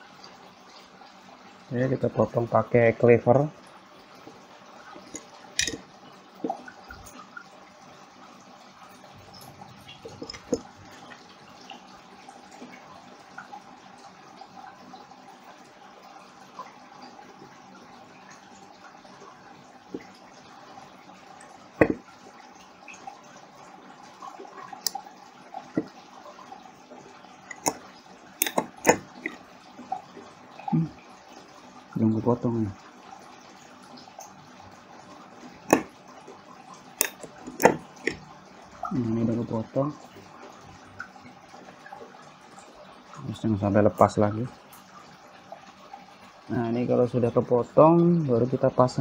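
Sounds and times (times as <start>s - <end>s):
sharp clicks and taps: 27.5s - 27.8s, 28.4s - 29.4s, 35.7s - 35.9s, 37.0s - 38.2s
sharp clicks of fiber cleaver: 28.4s - 29.0s.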